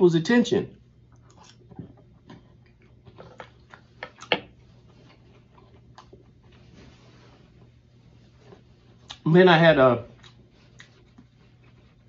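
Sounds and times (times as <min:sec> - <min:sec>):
man chewing food: 0:01.0 - 0:06.6, 0:10.1 - 0:12.0.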